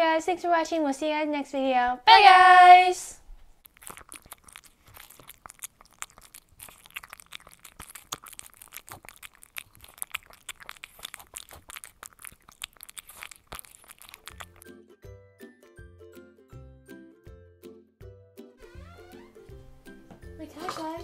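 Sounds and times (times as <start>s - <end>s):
cat licking and chewing: 3.6s - 14.9s.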